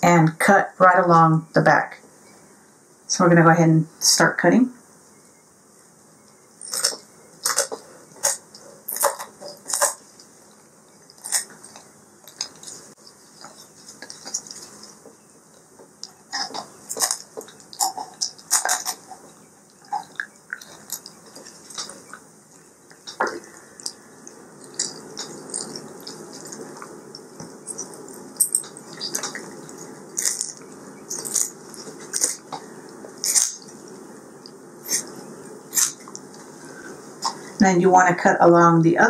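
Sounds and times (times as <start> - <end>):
kitchen shears snipping bones: 33.2 - 33.7.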